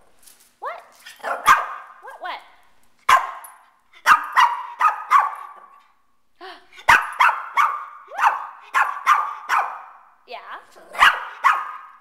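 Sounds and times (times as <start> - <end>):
small dog barking: 1.2 - 2.0, 3.1 - 5.7, 6.9 - 10.0, 10.9 - 12.0.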